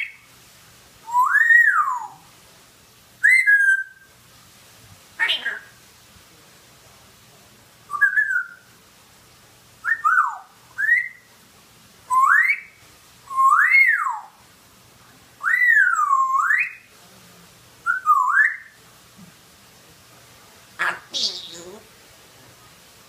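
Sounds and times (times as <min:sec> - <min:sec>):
parrot whistling: 0:01.0 - 0:02.2, 0:03.2 - 0:04.1, 0:07.9 - 0:08.7, 0:09.8 - 0:11.3, 0:12.1 - 0:14.4, 0:15.4 - 0:16.9, 0:17.8 - 0:18.8, 0:20.8 - 0:21.8.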